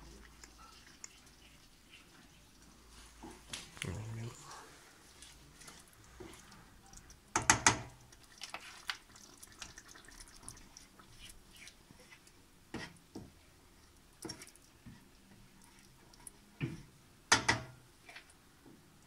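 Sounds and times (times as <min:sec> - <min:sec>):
spoon scooping wet puree: 0:00.0 - 0:07.2.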